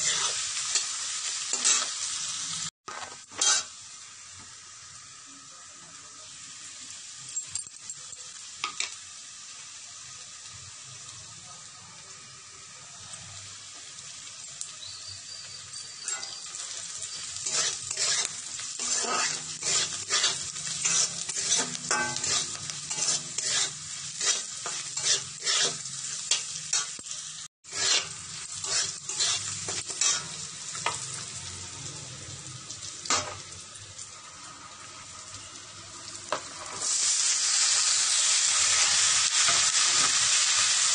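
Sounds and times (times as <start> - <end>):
metal spatula scraping a pan: 0.0 - 2.0, 2.9 - 3.7, 15.7 - 31.4
onions sizzling in hot oil: 0.0 - 40.9.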